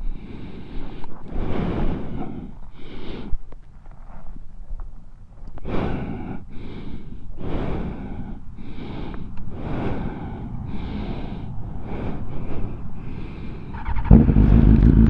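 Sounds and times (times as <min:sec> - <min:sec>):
person breathing heavily: 0:00.0 - 0:03.6, 0:05.5 - 0:14.0.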